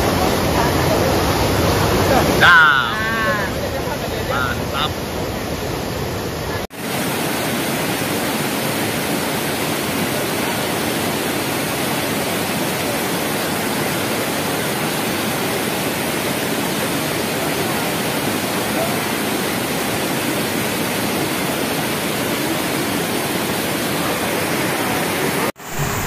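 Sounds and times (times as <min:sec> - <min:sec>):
waterfall pouring over rocks: 0:05.6 - 0:26.0.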